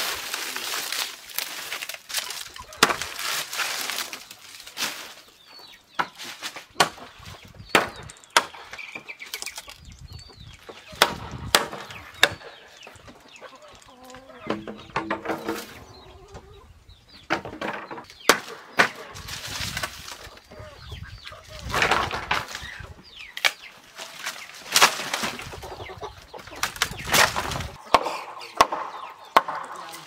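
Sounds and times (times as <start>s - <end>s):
dry thatch rustling: 0.0s - 5.4s, 6.2s - 6.7s, 18.9s - 20.6s, 21.5s - 25.6s
chickens clucking: 2.1s - 8.1s, 8.8s - 30.0s
bamboo poles knocking: 14.5s - 15.7s, 26.6s - 30.0s.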